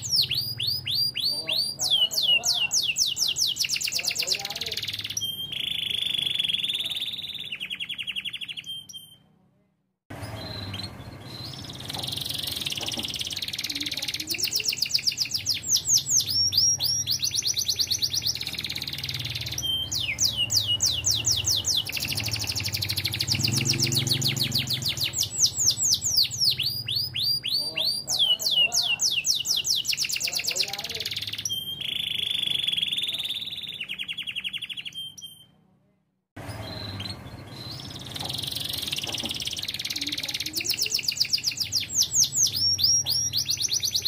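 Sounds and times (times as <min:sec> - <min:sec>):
canary singing trills: 0:00.0 - 0:09.3, 0:10.1 - 0:35.6, 0:36.4 - 0:44.0.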